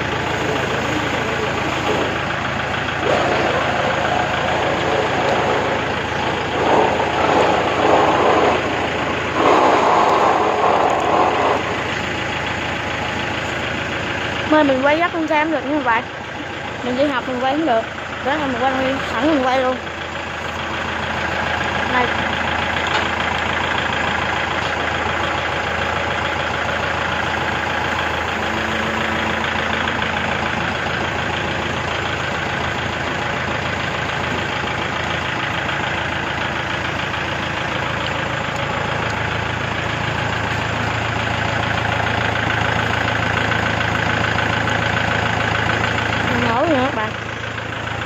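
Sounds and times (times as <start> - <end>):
diesel engine idling: 0.0 - 48.0.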